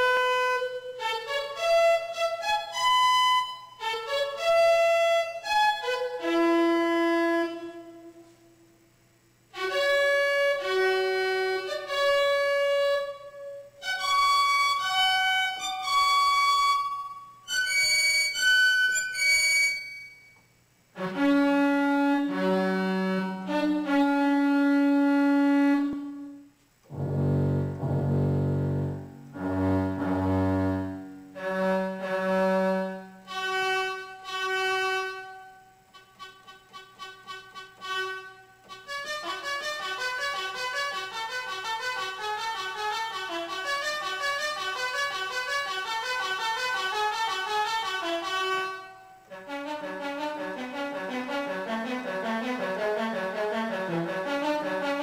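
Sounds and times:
analog synthesizer notes: 26.8 - 33.2.

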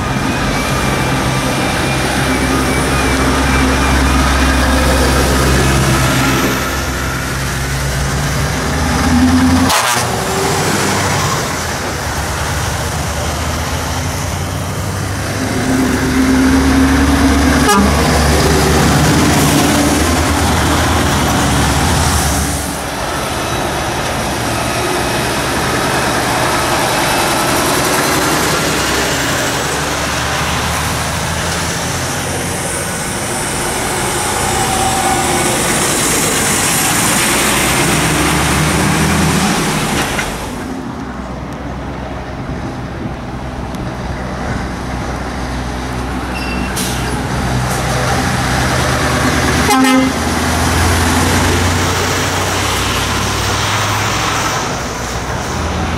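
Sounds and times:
lorries driving past: 0.0 - 55.9
truck horn toot: 9.1 - 10.4, 15.4 - 18.3, 49.6 - 50.4.

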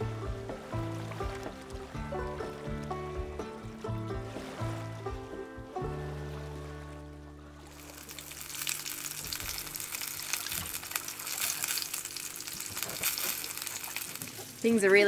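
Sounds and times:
food sizzling in a frying pan: 7.8 - 14.8.

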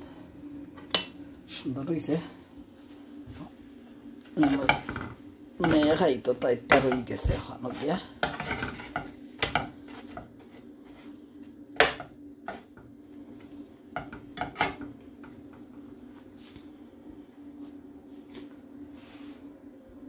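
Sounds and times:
steady low hum: 0.0 - 20.0
metal spatula scraping frying pan: 6.7 - 11.0.

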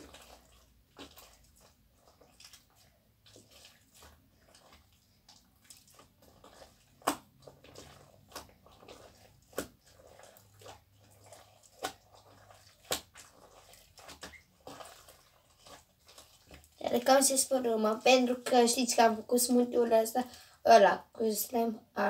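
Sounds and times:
slime squelching: 0.0 - 21.7
sharp wet pops: 3.4 - 19.0.

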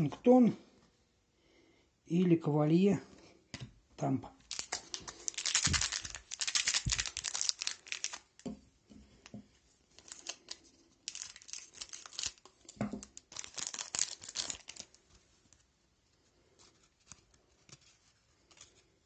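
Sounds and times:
foil wrapper crinkling: 4.4 - 8.5, 9.9 - 15.1.

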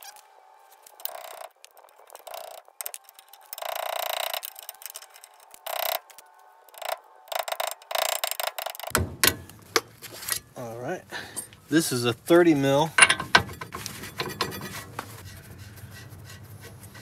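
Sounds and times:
metal tools scraping and clicking: 0.9 - 10.6, 12.9 - 15.4.

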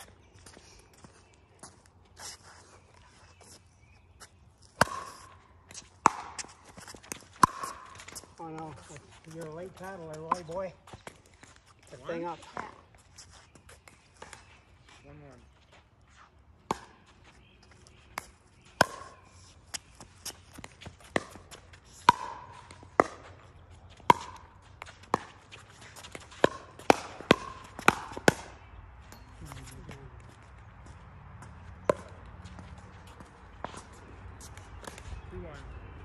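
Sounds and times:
paddles hitting plastic ball: 18.1 - 23.4, 24.0 - 28.6.

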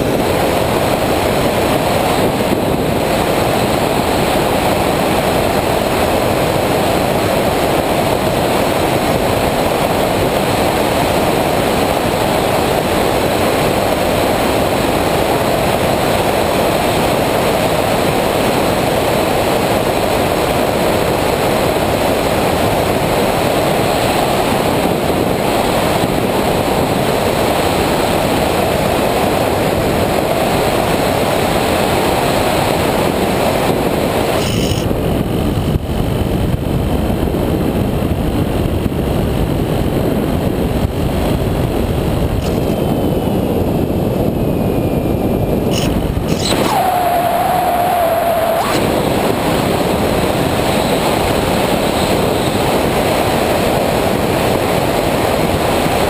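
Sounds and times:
wind rushing over camera: 0.0 - 56.0
electric propeller whirring: 41.8 - 51.9.

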